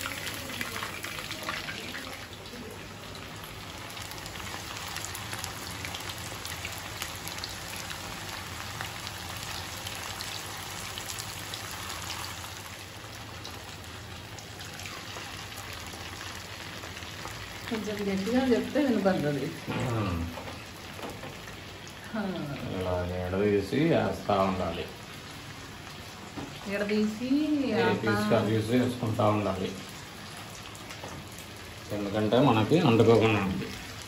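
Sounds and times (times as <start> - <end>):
chicken deep-frying in hot oil: 0.0 - 34.0.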